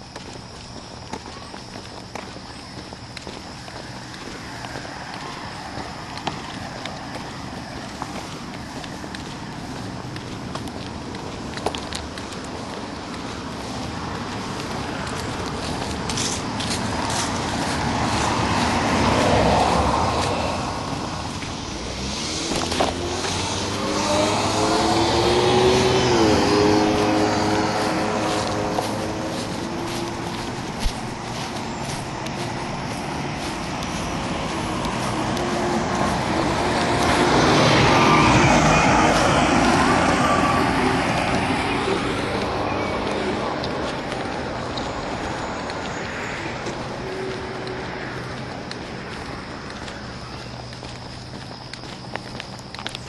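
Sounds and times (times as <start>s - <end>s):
vehicle engine rising in pitch: 17.9s - 49.4s.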